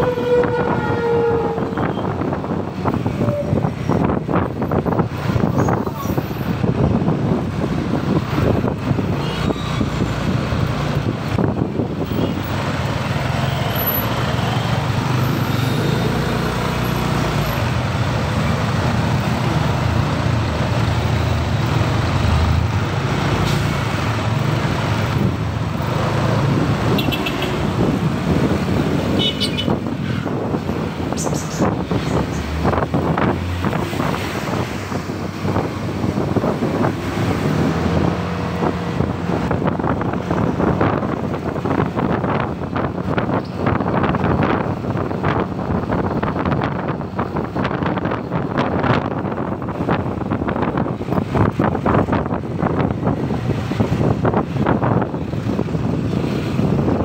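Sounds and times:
vehicle horn: 0:00.0 - 0:02.2, 0:27.0 - 0:27.6, 0:29.2 - 0:29.8
hum of surrounding traffic: 0:00.0 - 0:57.0
scooter engine and road noise: 0:00.0 - 0:57.0.

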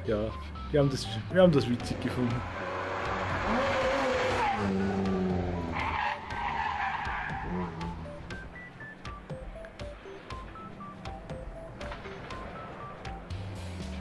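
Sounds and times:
rally car engine revving: 0:00.3 - 0:14.0
tyre squeal: 0:03.4 - 0:08.0.

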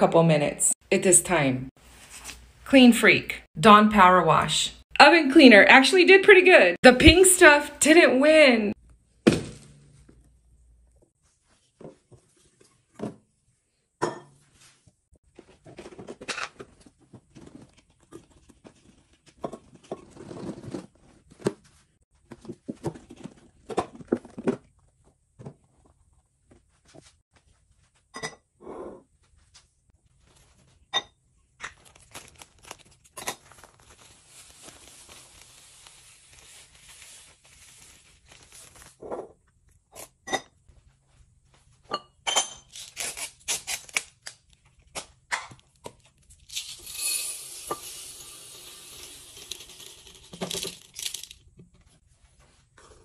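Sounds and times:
beads pouring into glass jar: 0:46.5 - 0:51.4.

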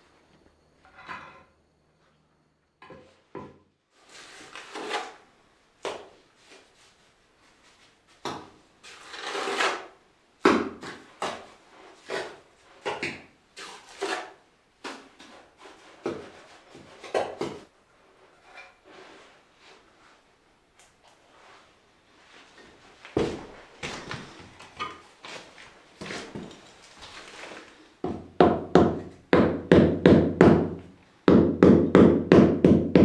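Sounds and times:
mortar scooped from bucket: 0:25.2 - 0:27.9.

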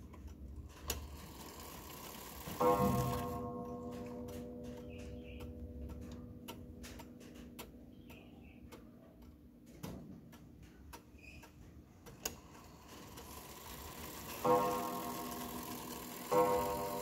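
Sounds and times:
pendulum clock ticking: 0:00.0 - 0:17.0
clock gong ringing: 0:02.1 - 0:05.4, 0:13.5 - 0:17.0.

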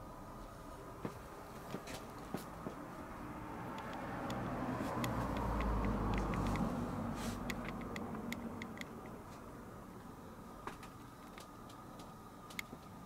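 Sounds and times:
vehicle passing by: 0:02.6 - 0:09.2.

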